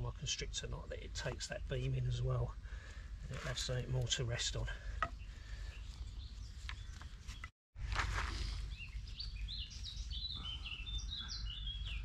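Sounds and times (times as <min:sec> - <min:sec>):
birds chirping: 0:00.0 - 0:07.5, 0:08.3 - 0:12.0
rustle of sticks and cord: 0:03.2 - 0:10.2.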